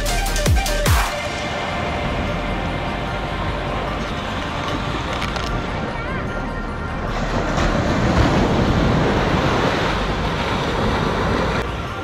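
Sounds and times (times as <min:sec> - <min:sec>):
surf washing on beach: 0:07.1 - 0:11.9.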